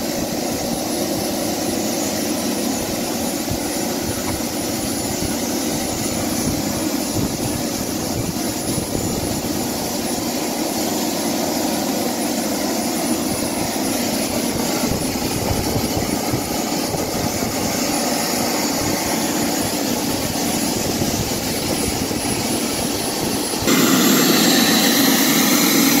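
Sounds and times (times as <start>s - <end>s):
model jet engine rushing: 0.0s - 26.0s
thin high whine: 13.0s - 26.0s.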